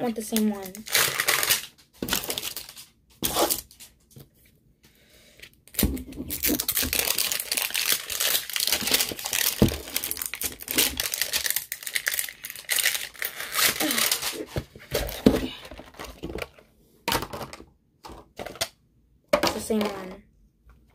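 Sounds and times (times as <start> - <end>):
plastic wrapping crinkling and tearing: 0.1 - 4.1, 5.6 - 16.6.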